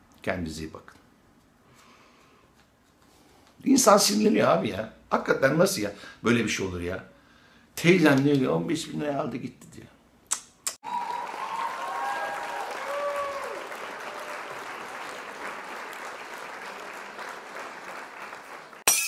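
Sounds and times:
short clicks: 0:10.3 - 0:10.8
applause: 0:10.8 - 0:18.8.

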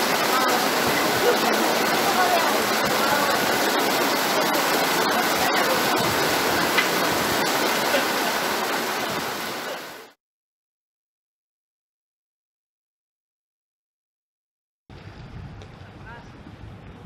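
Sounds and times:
heavy rain on umbrella: 0:00.0 - 0:10.2.

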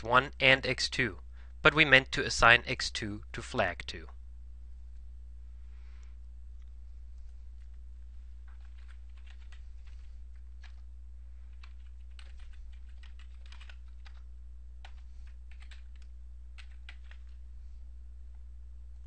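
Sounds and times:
steady low hum: 0:00.0 - 0:19.0
computer keyboard typing: 0:08.4 - 0:10.8, 0:11.5 - 0:17.4.

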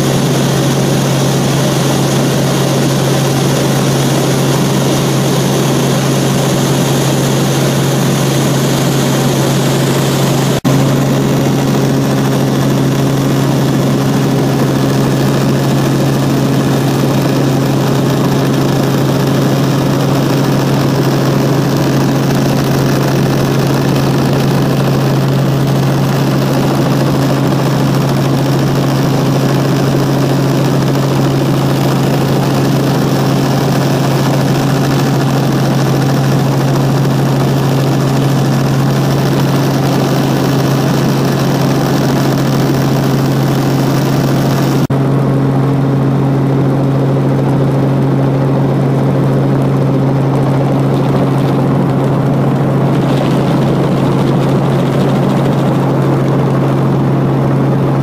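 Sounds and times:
helicopter engine and rotor drone: 0:00.0 - 0:58.0.

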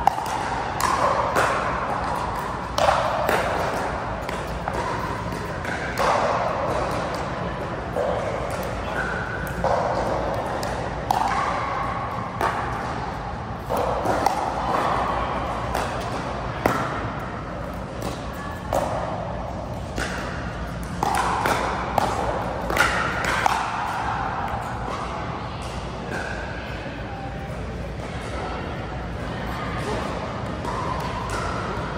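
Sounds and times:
ball bouncing on court: 0:19.7 - 0:24.7.

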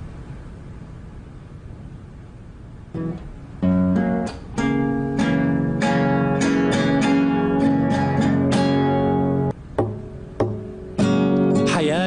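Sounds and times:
acoustic guitar strumming: 0:03.0 - 0:12.0.

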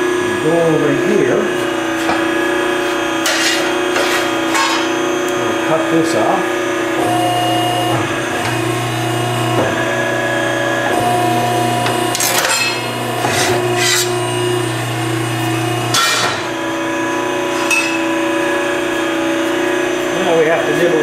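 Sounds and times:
metalworking machine humming: 0:00.0 - 0:21.0
shear clanking cutting metal bar: 0:03.2 - 0:05.0, 0:11.8 - 0:14.2, 0:15.9 - 0:16.6, 0:17.5 - 0:18.0.

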